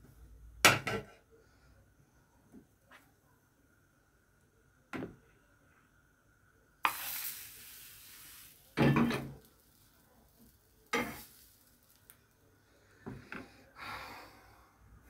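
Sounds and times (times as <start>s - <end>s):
batter sizzling in hot pan: 6.8s - 12.4s.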